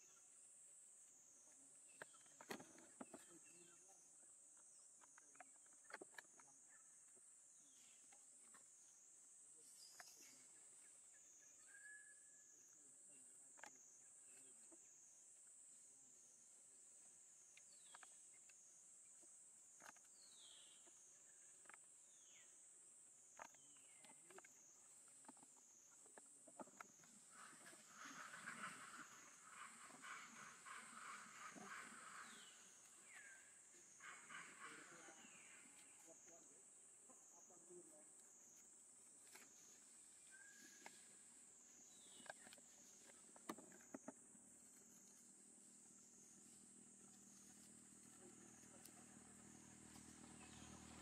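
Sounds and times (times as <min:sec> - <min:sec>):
high insect drone: 0:23.2 - 0:51.0.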